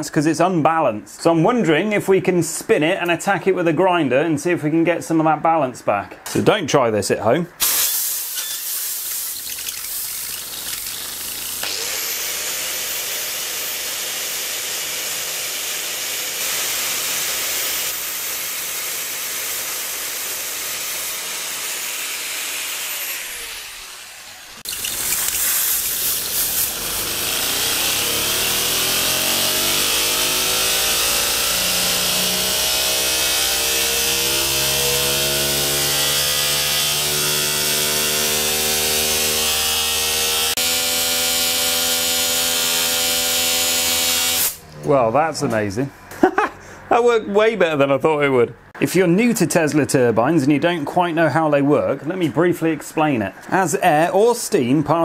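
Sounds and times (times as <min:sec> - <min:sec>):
hissing compressed air: 0:07.6 - 0:11.8, 0:23.2 - 0:27.8
angle grinder grinding: 0:07.6 - 0:44.8
turbine whine rising in pitch: 0:23.0 - 0:33.1.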